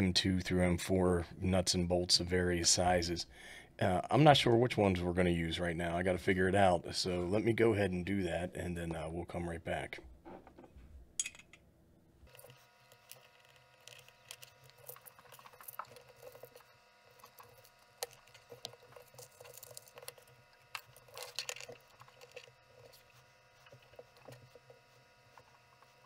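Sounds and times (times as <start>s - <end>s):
small metal screws rattling: 11.2s - 11.6s, 12.3s - 23.0s.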